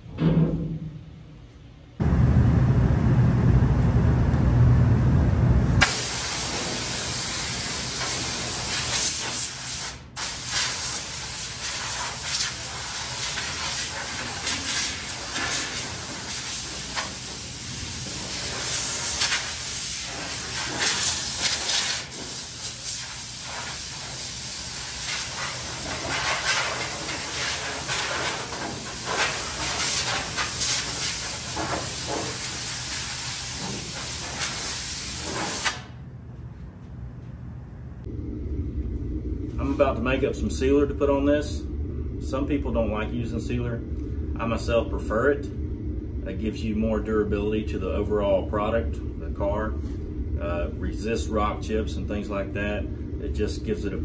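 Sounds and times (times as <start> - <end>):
compressed air blow gun hissing: 5.8 - 35.9.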